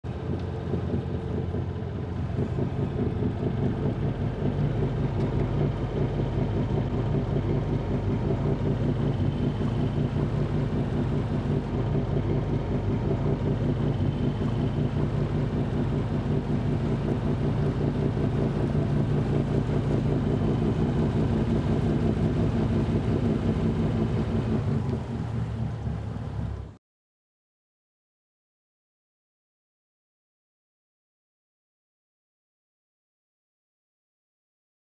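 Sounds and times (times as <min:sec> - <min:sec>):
diesel engine running: 0:00.0 - 0:26.8.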